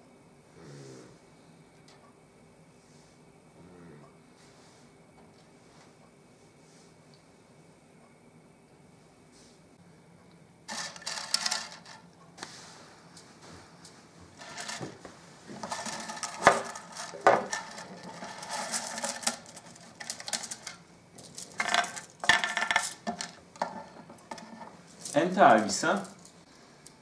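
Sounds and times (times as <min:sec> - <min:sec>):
small objects clattering on table: 0:10.7 - 0:12.1, 0:14.4 - 0:26.4.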